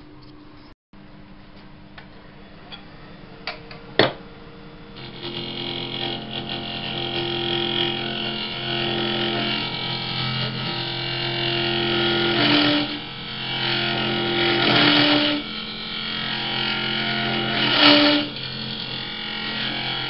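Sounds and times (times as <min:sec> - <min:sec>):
lathe motor humming: 0:02.6 - 0:20.0
turning tool scraping wood: 0:05.0 - 0:20.0.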